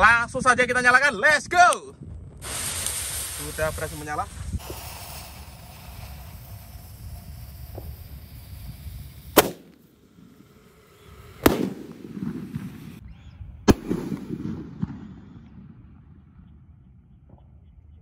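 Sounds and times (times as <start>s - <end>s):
roman candle bangs: 9.4s - 9.8s.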